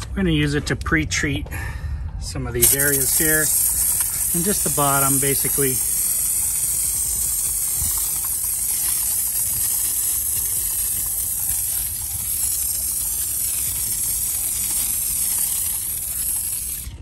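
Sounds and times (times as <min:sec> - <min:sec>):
pressure sprayer hissing: 0:02.6 - 0:17.0.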